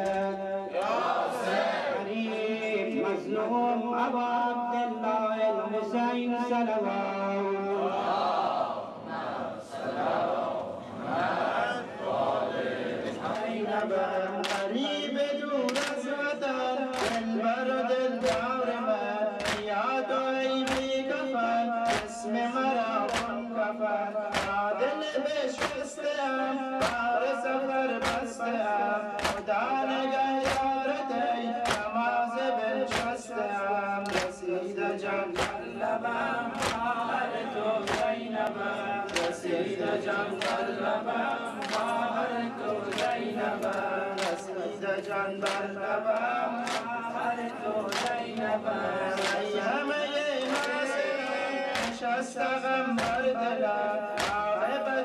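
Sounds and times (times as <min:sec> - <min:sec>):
men chanting a lament: 0:00.0 - 0:55.0
sharp rhythmic beats: 0:12.7 - 0:55.0.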